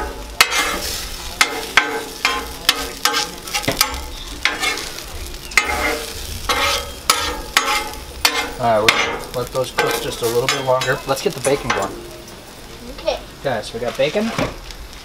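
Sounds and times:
metal spatula scraping and tapping: 0:00.0 - 0:05.0, 0:05.6 - 0:12.1
hash browns sizzling on griddle: 0:00.0 - 0:15.0.

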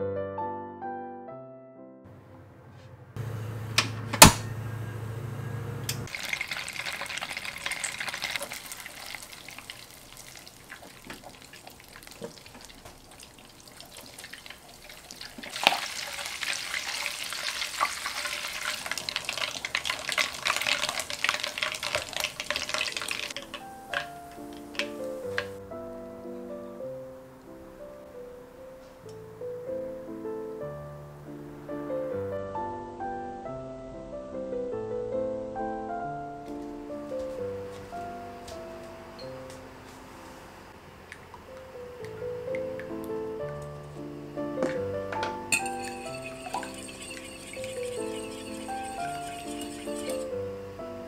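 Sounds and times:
low hum: 0:03.2 - 0:06.1
butter sizzling in a saucepan: 0:06.1 - 0:24.0, 0:45.6 - 0:50.4
wooden spoon stirring: 0:06.1 - 0:24.1, 0:45.5 - 0:50.4.

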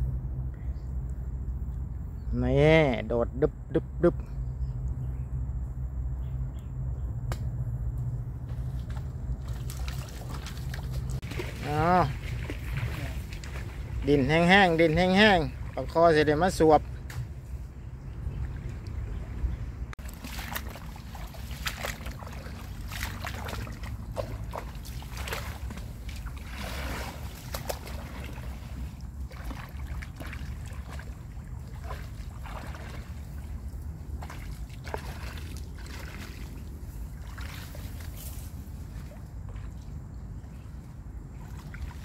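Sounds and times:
wind rumble on microphone: 0:04.2 - 0:42.0
hands splashing muddy water: 0:08.7 - 0:16.0, 0:20.0 - 0:38.3.

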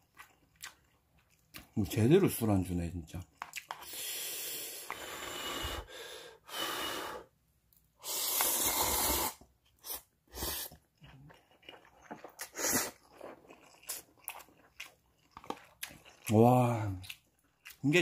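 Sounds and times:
chewing mouth sounds: 0:00.0 - 0:01.8, 0:03.2 - 0:04.0, 0:09.8 - 0:18.0
person slurping noodles: 0:03.8 - 0:07.2, 0:08.0 - 0:11.2, 0:11.8 - 0:13.2.

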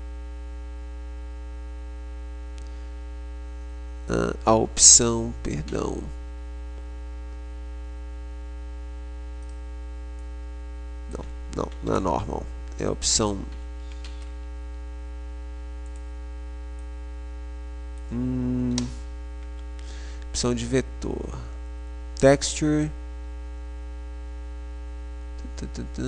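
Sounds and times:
electrical mains hum: 0:00.0 - 0:26.0
man murmuring: 0:18.1 - 0:19.0.

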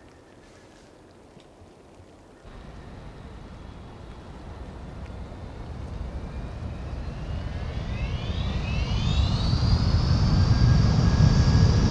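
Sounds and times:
jet engine rumble: 0:02.5 - 0:11.9
rising whine: 0:02.5 - 0:11.9.

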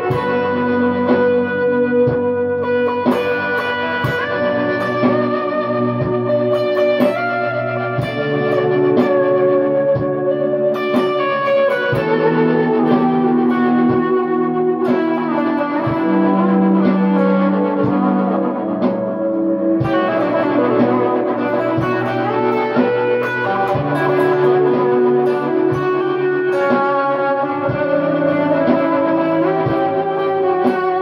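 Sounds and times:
electric guitar with reverb and delay: 0:00.0 - 0:31.0.

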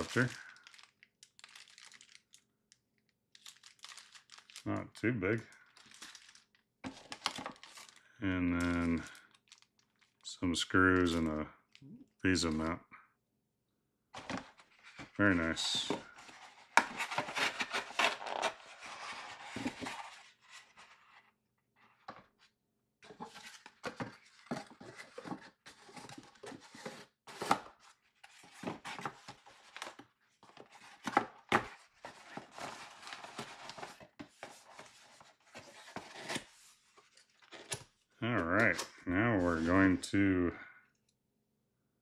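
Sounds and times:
paper rustling and crinkling: 0:00.0 - 0:02.4, 0:03.4 - 0:04.7, 0:05.4 - 0:08.0, 0:08.6 - 0:10.2, 0:14.2 - 0:21.2, 0:23.0 - 0:38.0
cardboard scraping: 0:14.2 - 0:21.2, 0:23.0 - 0:37.8.

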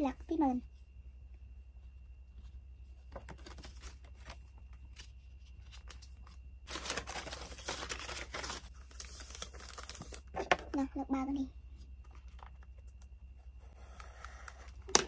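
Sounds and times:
paper wrapping crinkling: 0:03.2 - 0:10.3.

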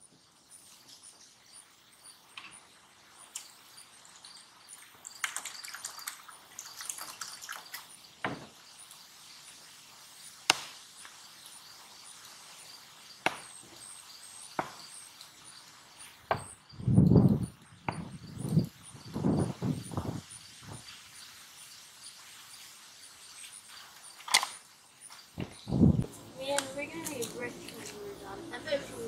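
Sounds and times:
bird chirps: 0:11.0 - 0:29.0.

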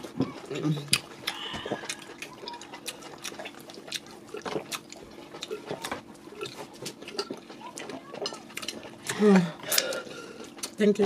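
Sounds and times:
food squelching by hand: 0:00.0 - 0:11.0
wet chewing: 0:00.0 - 0:11.0.

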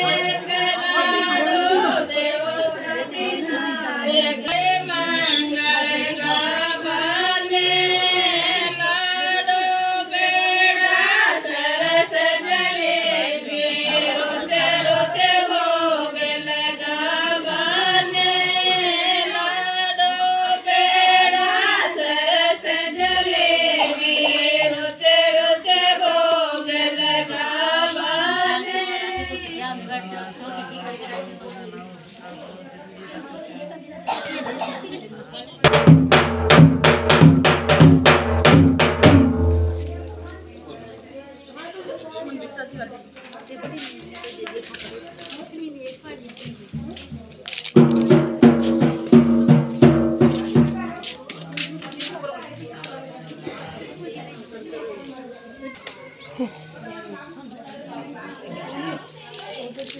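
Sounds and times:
women singing in chanting style: 0:00.0 - 0:31.4.

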